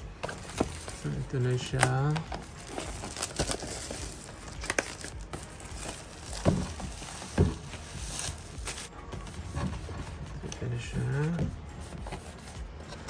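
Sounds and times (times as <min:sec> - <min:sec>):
plastic wrap crinkling: 0:00.1 - 0:09.9.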